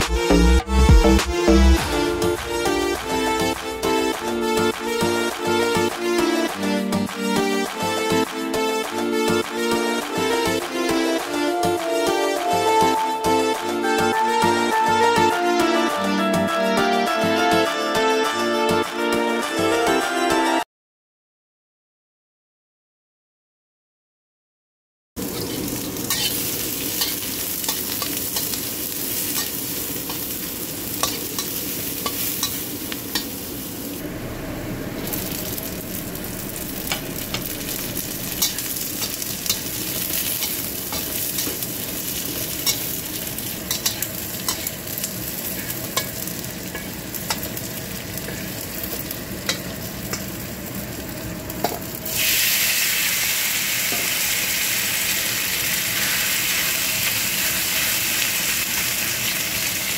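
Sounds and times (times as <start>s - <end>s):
vegetables sizzling in hot oil: 25.2s - 59.9s
metal spatula scraping a pan: 25.3s - 28.6s, 38.3s - 47.6s.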